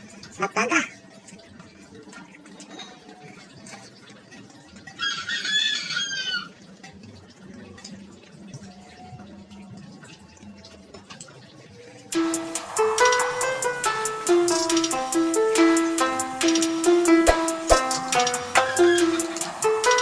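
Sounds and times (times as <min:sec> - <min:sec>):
rooster crowing: 0:05.0 - 0:06.5
piano-like music: 0:12.2 - 0:20.0.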